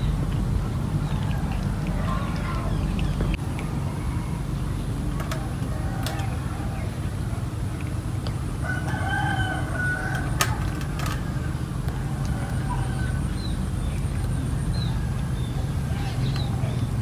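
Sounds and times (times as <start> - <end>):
steady low rumble: 0.0 - 17.0
rooster crowing: 8.6 - 10.6, 12.3 - 13.4.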